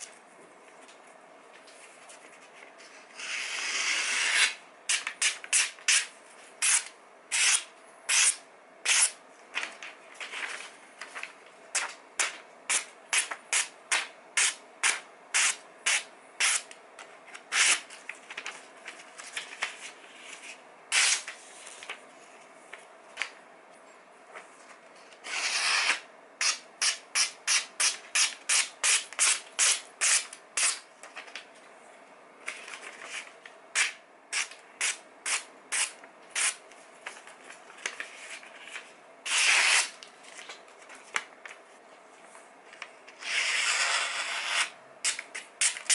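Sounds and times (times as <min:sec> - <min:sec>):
paper rustling swishes: 0:09.6 - 0:12.4.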